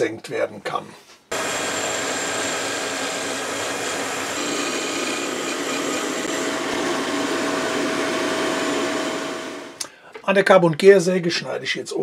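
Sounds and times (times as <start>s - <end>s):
drill press boring into wood: 1.3s - 9.8s.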